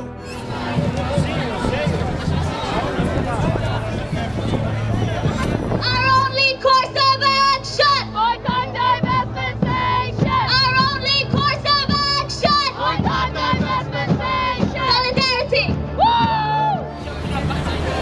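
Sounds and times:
woman chanting through loudspeakers: 5.9 - 15.8.

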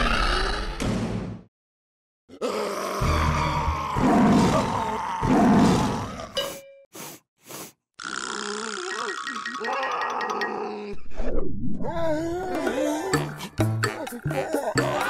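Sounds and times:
deep monster growl: 0.0 - 0.8, 2.3 - 6.3
music: 12.5 - 15.0.

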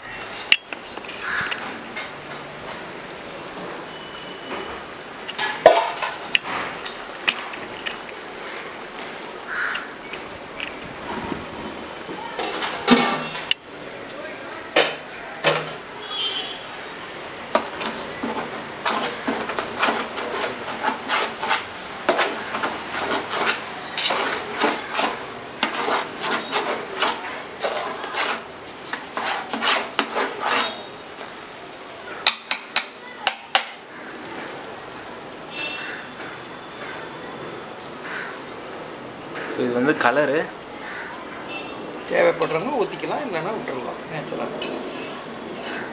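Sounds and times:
spatula scraping metal pot: 17.5 - 31.1, 44.6 - 45.9.

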